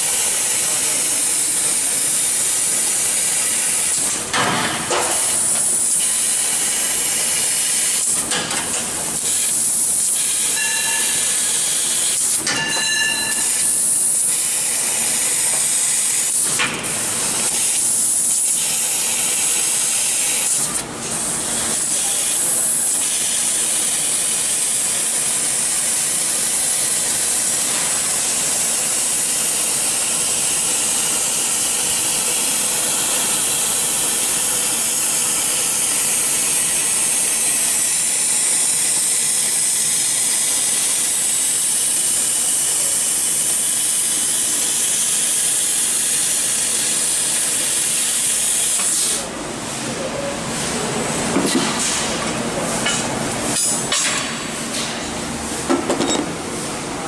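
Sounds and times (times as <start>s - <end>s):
laser cutter gas jet hissing: 0.0s - 49.3s.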